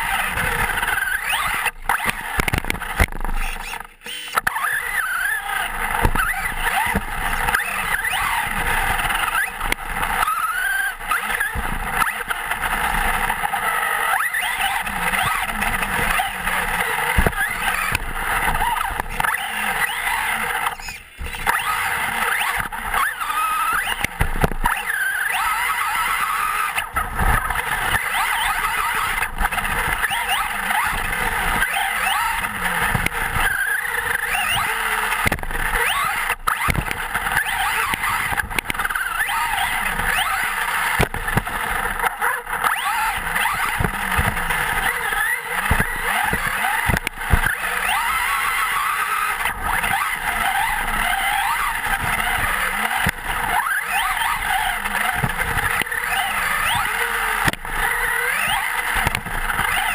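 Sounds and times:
electric motor whine: 0:00.0 - 0:59.9
tyres on dirt: 0:04.3 - 0:59.9.

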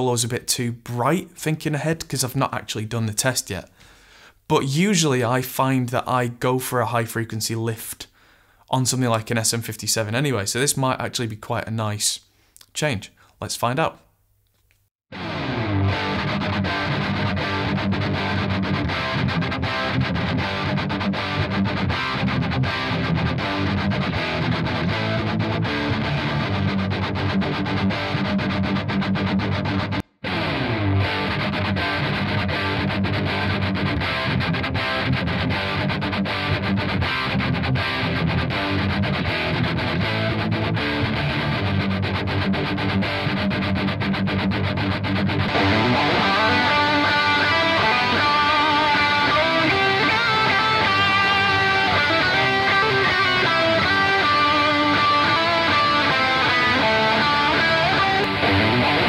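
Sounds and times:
distorted electric guitar: 0:15.1 - 0:59.0.

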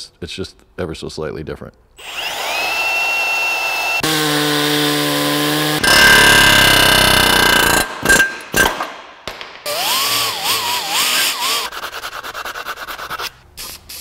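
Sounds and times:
power tool grinding steel: 0:02.0 - 0:08.3, 0:09.7 - 0:11.8.

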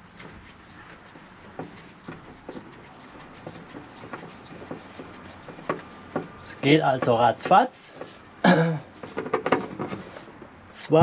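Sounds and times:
wooden leg rubbing and turning: 0:00.0 - 0:11.0.

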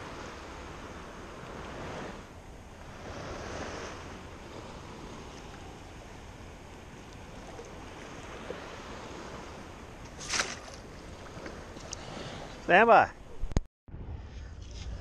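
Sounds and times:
wind on microphone: 0:00.0 - 0:15.0
shallow water sloshing around legs: 0:02.9 - 0:12.6
sharp splash: 0:10.1 - 0:10.9.

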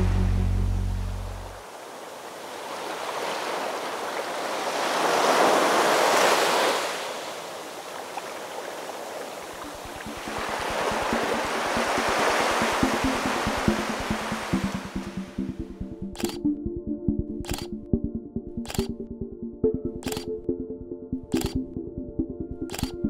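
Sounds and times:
waves washing up shore: 0:01.6 - 0:15.2
music with steady beat: 0:09.7 - 0:23.0.

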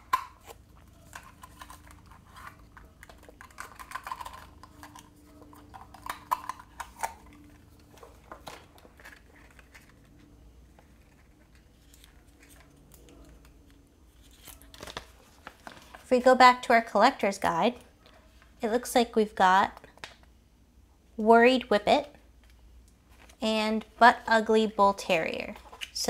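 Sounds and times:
plastic packaging clicks and crinkles: 0:00.0 - 0:16.1.

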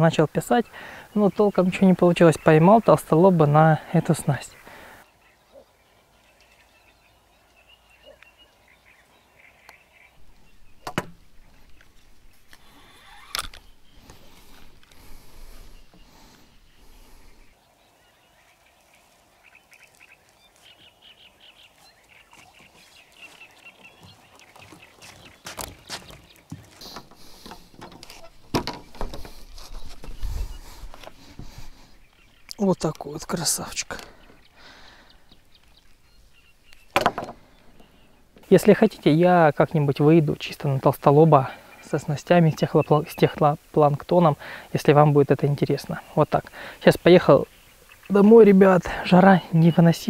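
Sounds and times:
faint bird chirps: 0:03.8 - 0:26.0
rustling: 0:10.2 - 0:18.0, 0:18.6 - 0:38.6
sharp knocks: 0:10.8 - 0:11.3, 0:36.9 - 0:37.4
fishing reel handling noise: 0:12.5 - 0:13.7.

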